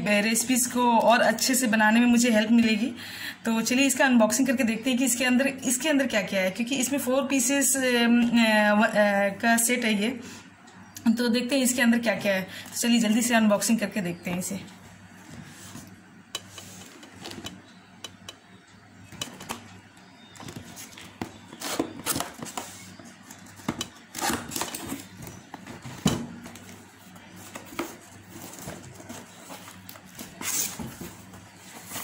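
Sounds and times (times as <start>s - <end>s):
low steady hum: 0.0s - 32.0s
cardboard rustling: 20.4s - 32.0s.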